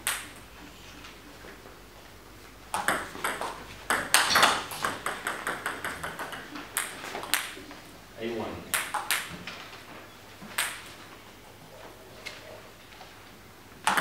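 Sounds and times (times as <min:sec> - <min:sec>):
table tennis ball clicking: 0:02.7 - 0:07.6, 0:08.7 - 0:09.3.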